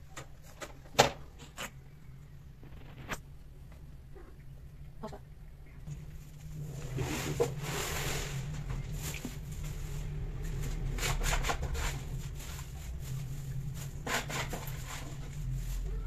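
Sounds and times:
scuffs and rustles: 6.2 - 16.0.

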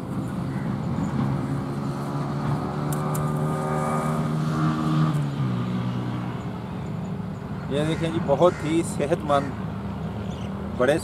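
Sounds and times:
engine running: 0.0 - 7.6.

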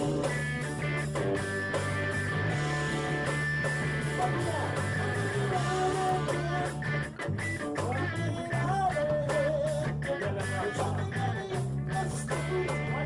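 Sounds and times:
person singing: 0.0 - 0.7, 4.2 - 6.9, 7.8 - 13.0
reggae band playing: 0.0 - 13.0.

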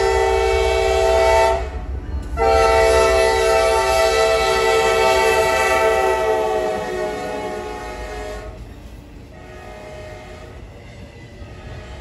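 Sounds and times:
train horn chord: 0.0 - 1.8, 2.4 - 8.6, 9.3 - 10.6
rumble of freight cars rolling: 0.0 - 12.0.

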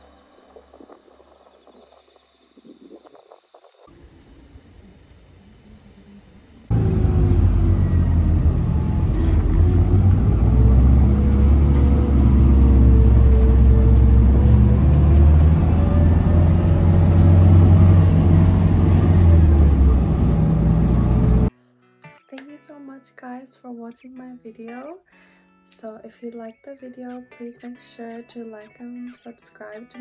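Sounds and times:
road rumble: 4.0 - 21.5
vehicle engine drone: 4.0 - 21.5.

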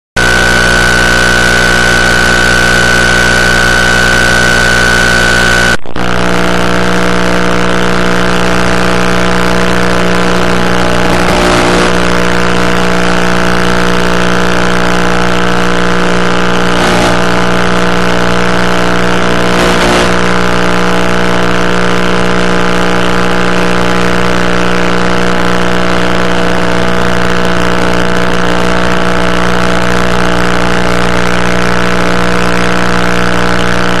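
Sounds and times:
electric motor and propeller drone: 0.2 - 5.8
high steady tone: 0.2 - 6.9, 8.1 - 13.6, 16.5 - 20.9.

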